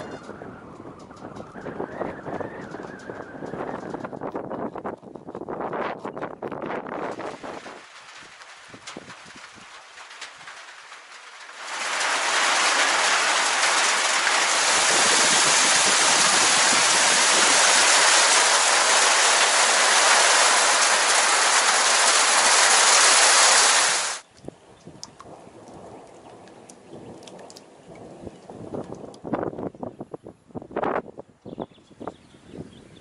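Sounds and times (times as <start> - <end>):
heavy rain pouring: 6.8 - 24.3, 24.9 - 29.6.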